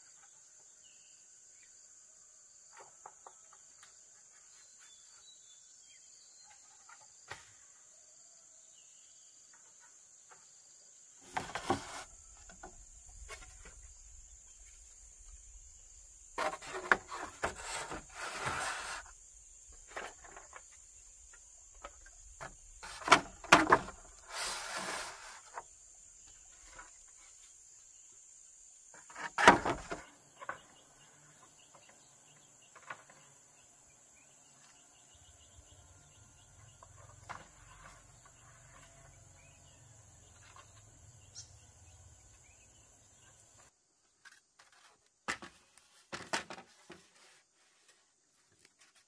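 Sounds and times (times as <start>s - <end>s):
bamboo knocking and scraping: 11.2s - 27.6s, 28.9s - 30.8s, 44.2s - 49.0s.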